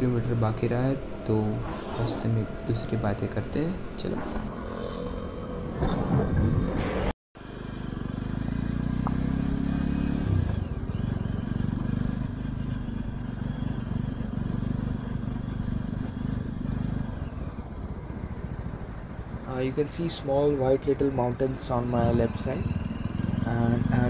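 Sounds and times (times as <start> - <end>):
motorcycle engine running: 7.4 - 24.0.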